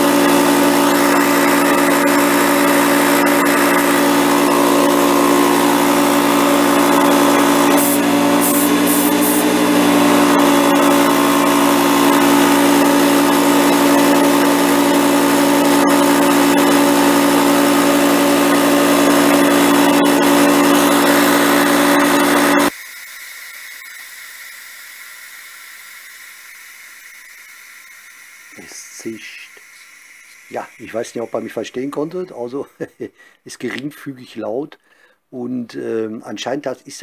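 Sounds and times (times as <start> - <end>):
air hissing: 0.0 - 32.3
air compressor humming: 0.0 - 33.4.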